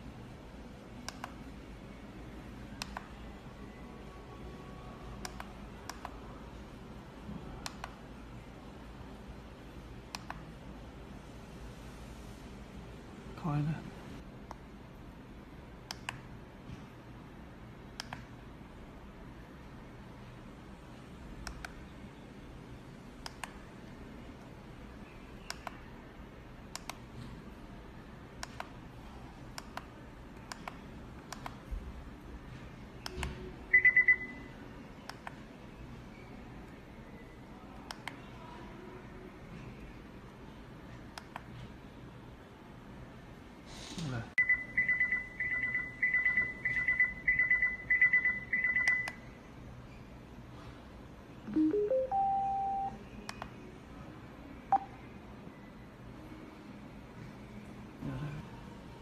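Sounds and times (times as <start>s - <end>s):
alarm clock high beeps: 33.7s - 34.4s, 44.4s - 49.1s, 51.5s - 53.0s
high-pitched alarm beeping: 33.7s - 34.4s
button clicks: 51.5s - 52.9s
short beep: 51.5s - 53.0s
rising four-note chime: 51.6s - 52.9s.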